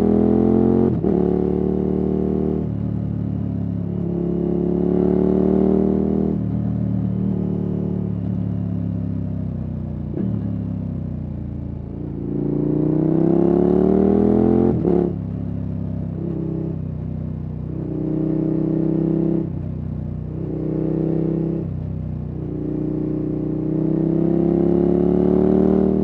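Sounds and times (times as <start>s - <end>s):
motorcycle engine revving: 0.0s - 2.8s, 3.8s - 8.2s, 11.9s - 16.8s, 17.8s - 19.6s, 20.3s - 26.0s.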